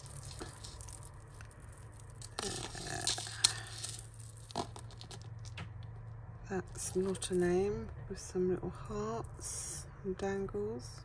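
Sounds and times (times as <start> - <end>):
chain necklace clinking and rustling: 0.0 - 6.0, 6.7 - 7.7.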